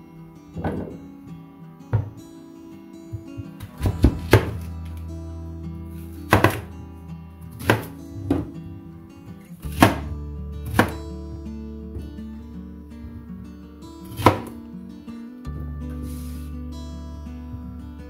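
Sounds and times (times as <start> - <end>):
background music: 0.0 - 18.0
knife chopping onion on cutting board: 6.3 - 6.7, 7.6 - 8.5, 9.7 - 10.1, 10.7 - 11.0, 14.1 - 14.5.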